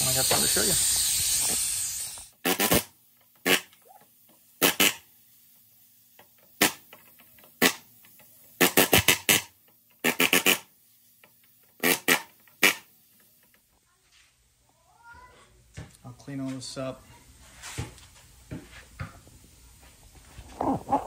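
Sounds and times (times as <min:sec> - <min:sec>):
pneumatic air hammer bursts: 0:00.0 - 0:03.7, 0:04.6 - 0:05.1, 0:06.6 - 0:10.7, 0:11.7 - 0:12.9.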